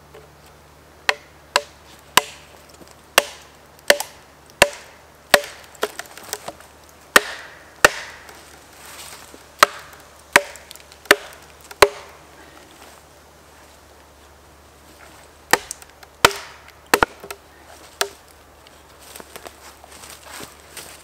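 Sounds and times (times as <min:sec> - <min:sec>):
axe striking wood: 0:01.1 - 0:02.5, 0:03.2 - 0:08.3, 0:09.6 - 0:12.2, 0:15.5 - 0:17.4.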